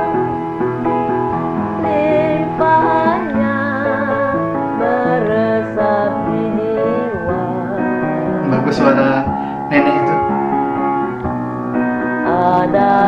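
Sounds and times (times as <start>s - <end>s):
piano accompaniment: 0.0s - 13.0s
elderly woman singing with vibrato: 1.8s - 8.4s, 12.3s - 13.0s.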